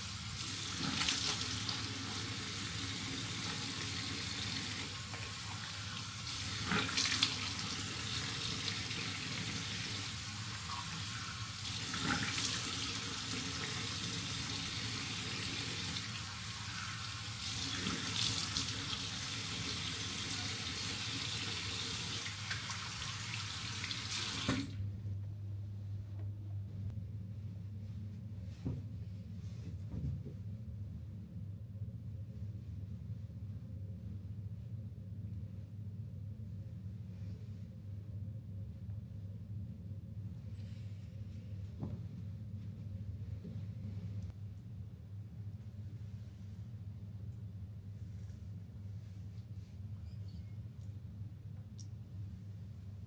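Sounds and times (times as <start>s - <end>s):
water running from sink tap: 0.1s - 24.7s.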